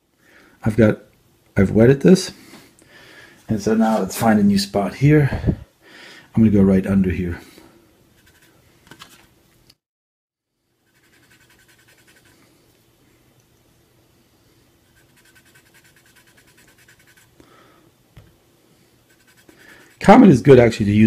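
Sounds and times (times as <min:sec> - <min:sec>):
cotton swab scrubbing plastic: 0:10.9 - 0:12.4, 0:14.9 - 0:17.4, 0:19.0 - 0:20.4.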